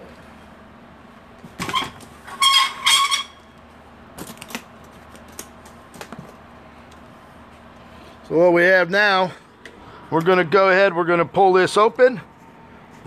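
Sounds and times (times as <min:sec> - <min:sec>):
high squeaks: 0:01.6 - 0:03.6.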